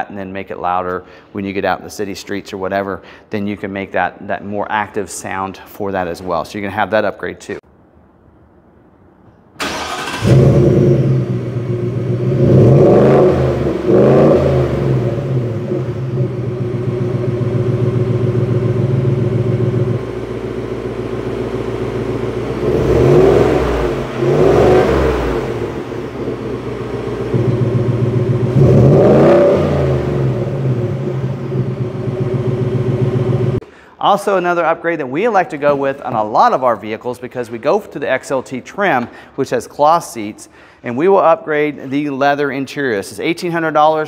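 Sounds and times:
truck engine starting and revving: 0:09.6 - 0:33.6.

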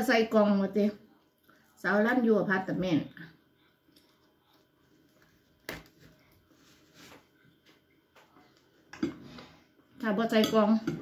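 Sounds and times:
faint chewing: 0:03.6 - 0:08.7.

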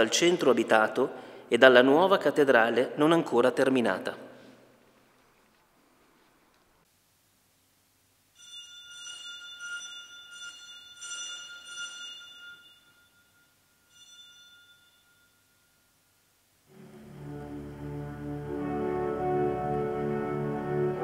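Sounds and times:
small bell ringing: 0:08.3 - 0:16.3
pipe organ playing: 0:16.7 - 0:21.0.

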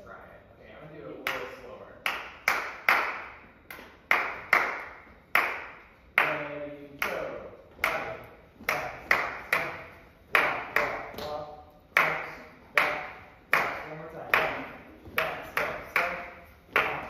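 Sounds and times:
hands clapping in rhythm: 0:01.2 - 0:17.0.

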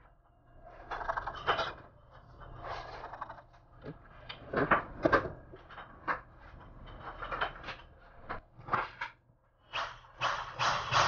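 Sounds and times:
hands rubbing and scraping parts: 0:02.4 - 0:04.6.

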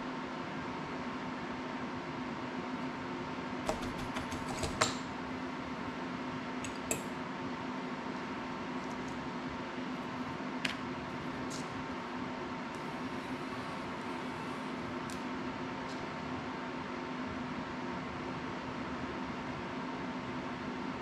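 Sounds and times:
steady low hum: 0:02.6 - 0:17.9
tools clicking and tapping: 0:03.7 - 0:05.1.

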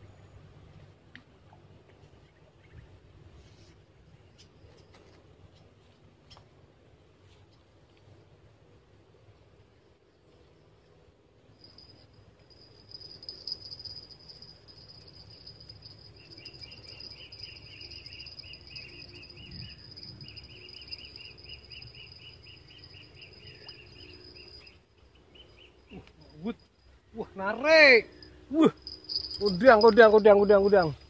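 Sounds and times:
low background rumble: 0:06.5 - 0:31.0
cricket trilling: 0:11.5 - 0:31.0
insect chirping in rapid pulses: 0:11.5 - 0:31.0.

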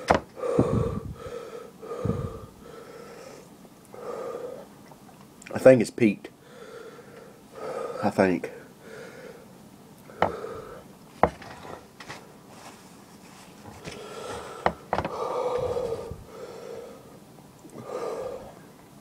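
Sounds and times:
man breathing hard: 0:00.0 - 0:04.7, 0:06.4 - 0:11.0, 0:13.7 - 0:18.7.

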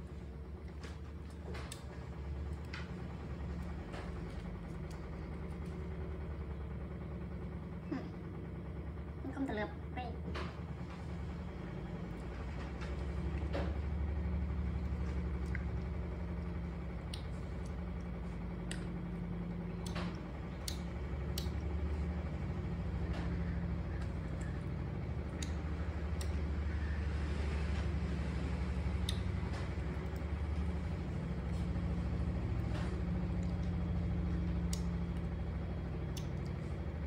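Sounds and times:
low engine-like rumble: 0:00.0 - 0:37.0.

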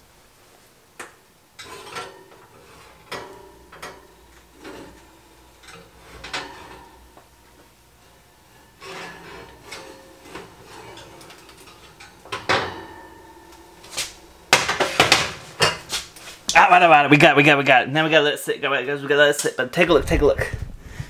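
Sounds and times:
dish scraping on oven wire rack: 0:01.6 - 0:07.2, 0:08.0 - 0:16.4.

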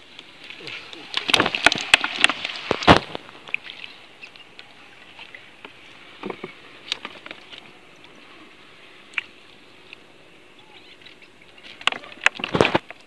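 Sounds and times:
water splashing and dripping: 0:00.0 - 0:08.2.

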